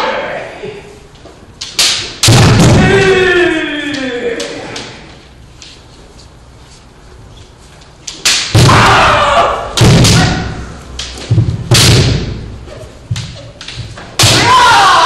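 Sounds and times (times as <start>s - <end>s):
bamboo sword strikes cracking: 1.6s - 2.9s, 8.0s - 9.0s, 9.8s - 12.4s, 13.2s - 14.6s
loud shout: 2.5s - 4.8s, 8.6s - 10.7s, 14.2s - 15.0s
bare feet stamping on wood: 11.2s - 12.5s.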